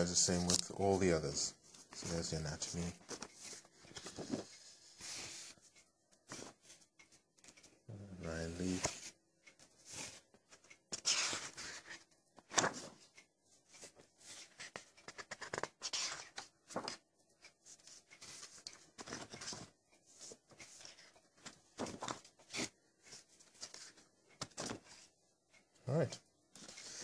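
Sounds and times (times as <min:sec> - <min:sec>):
paper pages turning and rustling: 0:01.7 - 0:06.8, 0:08.6 - 0:09.1, 0:09.8 - 0:25.1.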